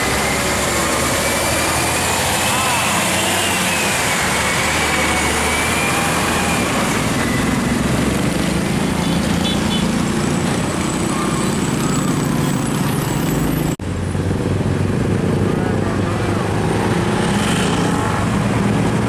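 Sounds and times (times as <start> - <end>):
truck driving past: 0.0 - 15.0.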